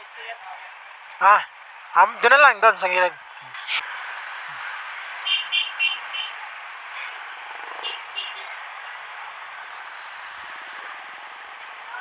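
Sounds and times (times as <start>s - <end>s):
wind and road noise: 0.0s - 12.0s
short high chirps: 8.8s - 9.1s.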